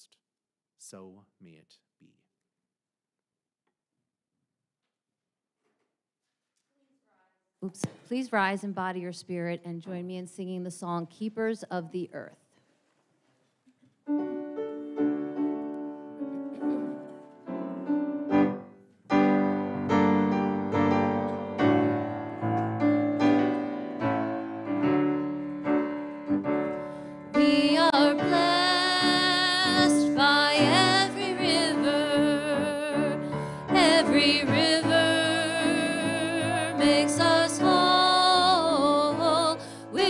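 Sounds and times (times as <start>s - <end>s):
piano playing a hymn: 14.1s - 40.0s
congregation singing: 27.2s - 40.0s
woman singing: 27.3s - 40.0s.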